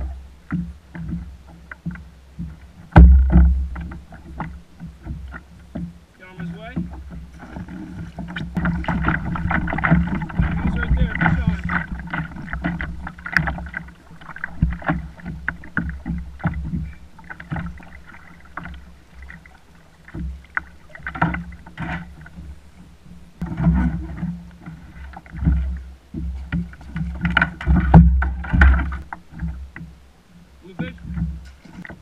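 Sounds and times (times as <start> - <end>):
water slapping plastic hull: 0.0 - 22.6, 23.4 - 30.0, 30.7 - 32.0
water splashes: 0.0 - 32.0
wind buffeting microphone: 7.8 - 13.1.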